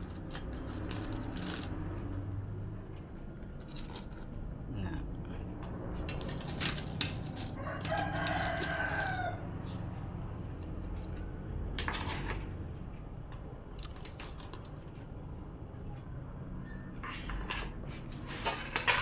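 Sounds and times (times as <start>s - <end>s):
rooster crowing: 7.4s - 9.6s.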